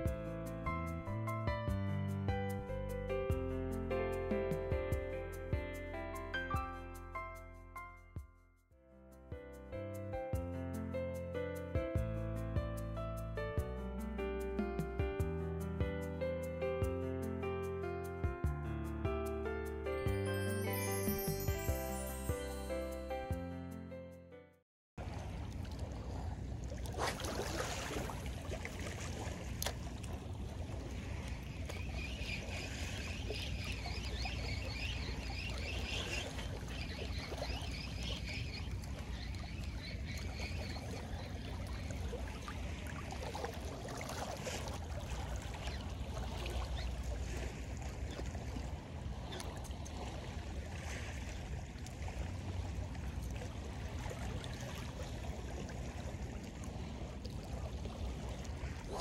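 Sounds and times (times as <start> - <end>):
water lapping and trickling: 25.0 - 59.0.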